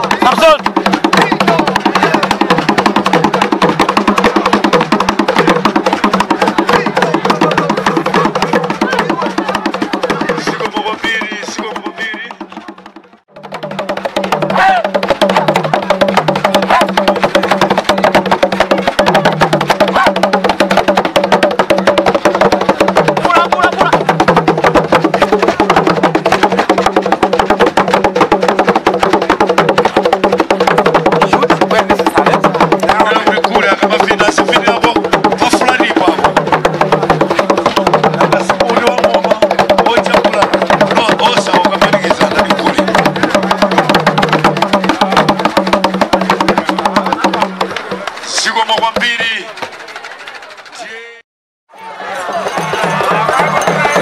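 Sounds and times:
drums playing fast beat: 0:00.0 - 0:51.2, 0:52.2 - 0:54.0.

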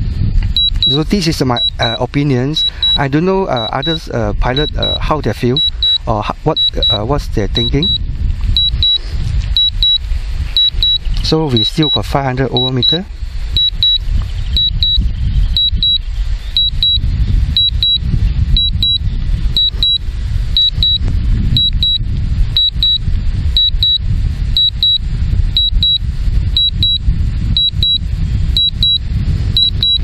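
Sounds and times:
wind buffeting microphone: 0:00.0 - 0:30.0
remote controller beeps: 0:00.6 - 0:08.0, 0:08.6 - 0:09.0, 0:09.6 - 0:10.0, 0:10.6 - 0:13.0, 0:13.6 - 0:14.0, 0:14.6 - 0:15.0, 0:15.6 - 0:16.0, 0:16.6 - 0:17.0, 0:17.6 - 0:18.0, 0:18.6 - 0:19.0, 0:19.6 - 0:20.0, 0:20.6 - 0:21.0, 0:21.6 - 0:22.0, 0:22.6 - 0:23.0, 0:23.6 - 0:24.0, 0:24.6 - 0:25.0, 0:25.6 - 0:26.0, 0:26.6 - 0:27.0, 0:27.6 - 0:28.0, 0:28.6 - 0:29.0, 0:29.6 - 0:30.0.

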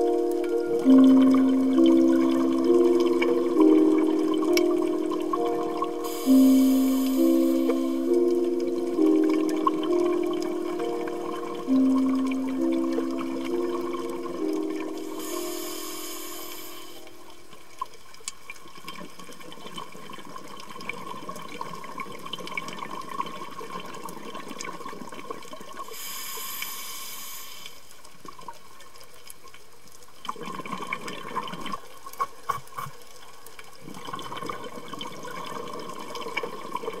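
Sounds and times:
high shimmering tone: 0:00.0 - 0:17.5
water bubbling and gurgling: 0:00.0 - 0:27.0, 0:30.1 - 0:37.0.

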